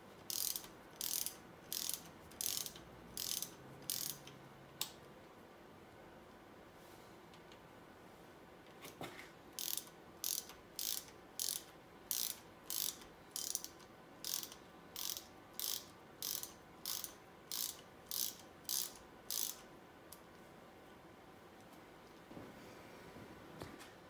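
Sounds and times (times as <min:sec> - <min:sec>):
ratchet wrench clicking: 0:00.3 - 0:04.4, 0:09.6 - 0:19.7.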